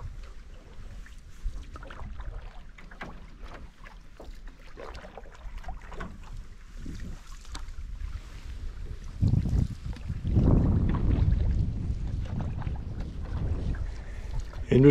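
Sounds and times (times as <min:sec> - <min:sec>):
wind buffeting microphone: 0:00.0 - 0:03.8, 0:04.9 - 0:14.9
paddle splashes and drips: 0:00.0 - 0:14.9
water lapping at hull: 0:00.0 - 0:14.9
wind rumble: 0:05.7 - 0:14.9.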